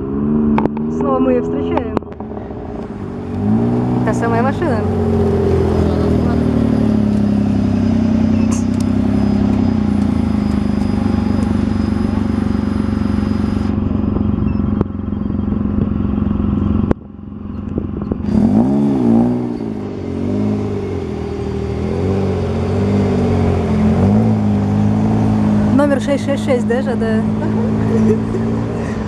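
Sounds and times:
buggy engine running and revving: 0.0 - 29.0.

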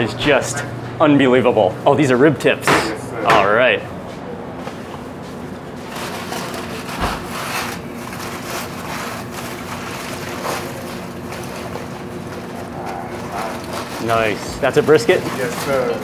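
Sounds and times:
steady background hum: 0.0 - 16.0
aluminium foil crinkling: 5.8 - 16.0.

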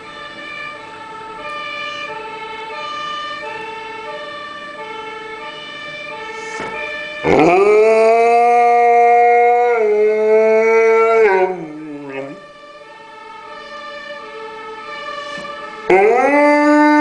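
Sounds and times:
fire engine two-tone siren: 0.0 - 17.0
dog howling: 7.2 - 12.4, 15.9 - 17.0.

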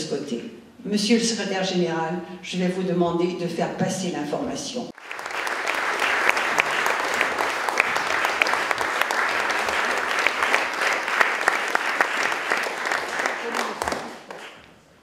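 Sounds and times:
audience applauding: 5.0 - 14.7.

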